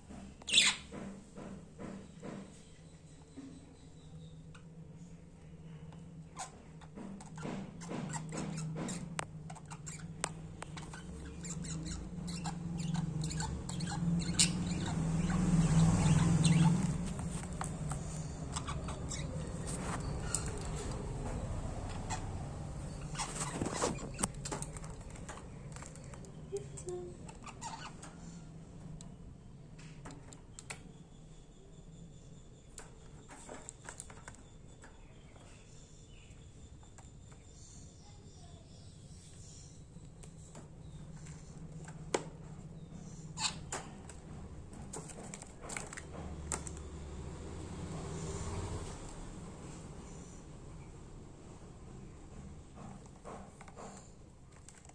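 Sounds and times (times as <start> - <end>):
budgerigars chirping: 0.5 - 0.8, 10.7 - 17.4, 18.0 - 20.5.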